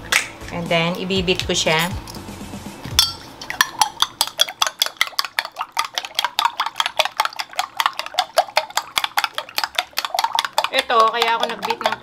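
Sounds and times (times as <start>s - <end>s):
spoon beating eggs in a bowl: 2.9s - 12.0s.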